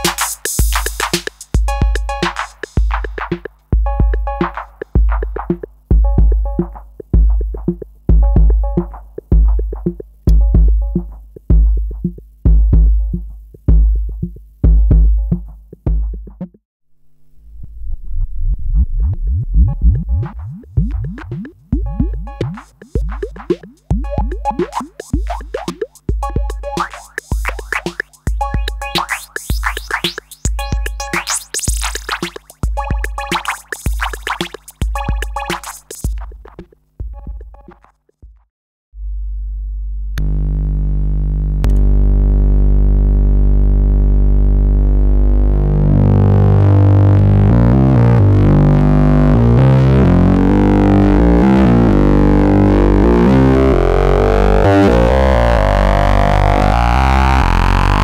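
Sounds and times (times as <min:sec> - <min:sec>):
plucky synth note sequence: 0:19.2 - 0:25.5, 0:26.2 - 0:35.8, 0:45.0 - 0:58.0
sweeping sawtooth synth drone: 0:47.5 - 0:58.0.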